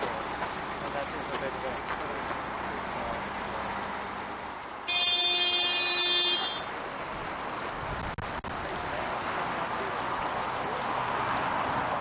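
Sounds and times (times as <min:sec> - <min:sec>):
boat horn blast: 0:04.9 - 0:06.7.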